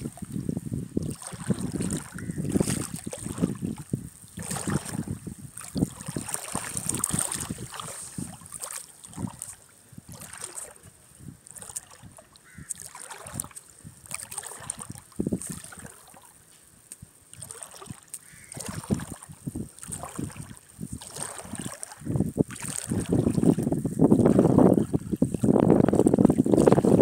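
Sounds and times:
shallow water lapping and sloshing: 0:00.0 - 0:27.0.

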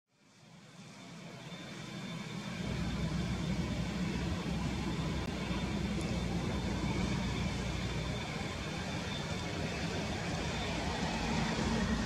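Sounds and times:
faint high engine whine: 0:00.1 - 0:12.0
jet engines rumbling: 0:00.3 - 0:12.0.

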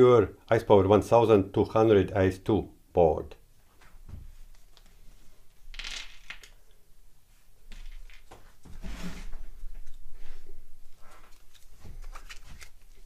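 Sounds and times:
gloved hands rustling: 0:09.4 - 0:13.0.

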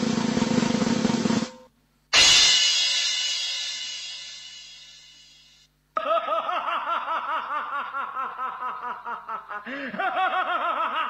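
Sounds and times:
drum and cymbal crash: 0:00.0 - 0:05.7
man laughing theatrically: 0:06.0 - 0:11.0.

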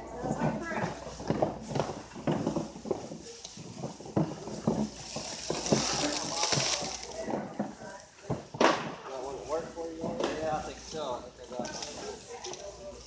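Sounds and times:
faint voices: 0:00.0 - 0:13.0
cardboard boxes knocking and scraping: 0:00.3 - 0:08.8
stretch wrap pulled off roll: 0:04.2 - 0:07.3.

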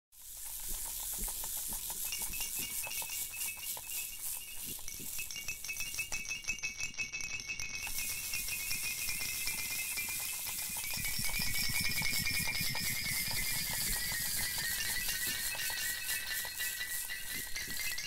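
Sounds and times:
rain pattering onto rocks: 0:00.2 - 0:05.7.

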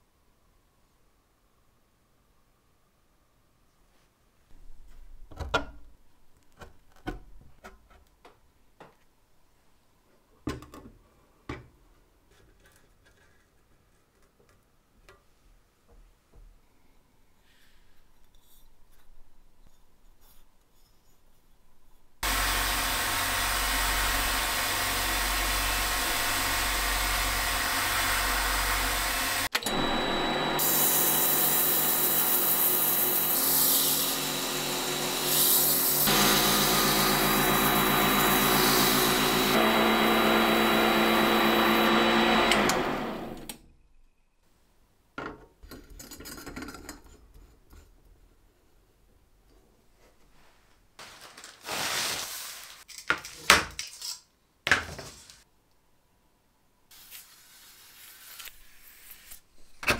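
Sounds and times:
lathe motor whine: 0:22.2 - 0:43.6
abrasive paper sanding hiss: 0:30.6 - 0:39.6.

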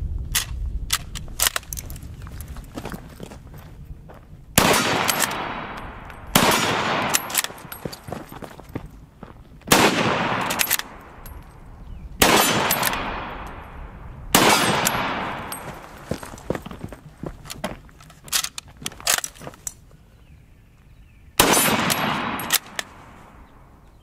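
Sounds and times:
rifle bolt clacking: 0:00.3 - 0:02.0, 0:04.9 - 0:08.1, 0:10.2 - 0:11.5, 0:12.2 - 0:13.7, 0:17.4 - 0:19.8, 0:21.6 - 0:23.0
rifle shots with echo: 0:04.6 - 0:08.0, 0:09.7 - 0:11.4, 0:12.2 - 0:16.1, 0:21.4 - 0:23.6.

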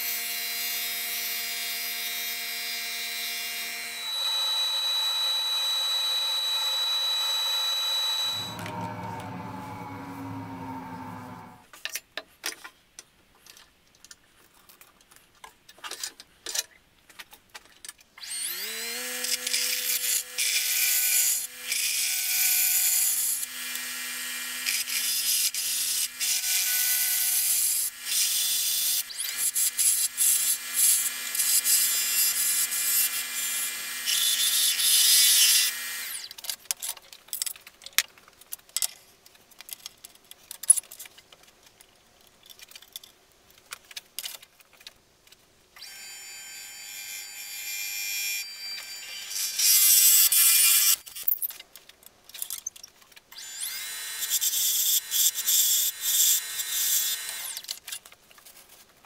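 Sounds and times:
wood lathe motor humming: 0:04.0 - 0:11.6
turning tool scraping wood: 0:07.7 - 0:11.6.

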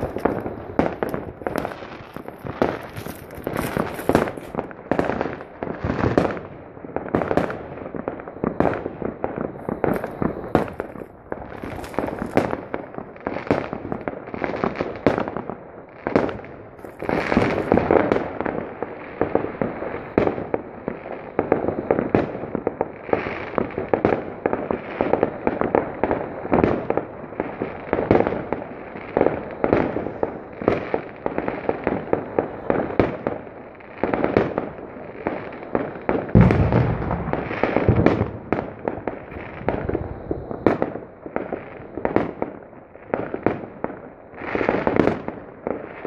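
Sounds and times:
fireworks bangs and crackles: 0:00.0 - 0:46.0
deep firework boom: 0:36.3 - 0:40.8.

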